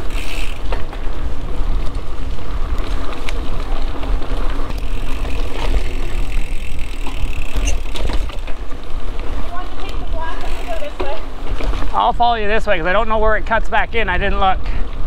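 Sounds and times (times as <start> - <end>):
bike clicks and rattles: 0.0 - 13.6
bike tyres rolling over dirt: 0.0 - 15.0.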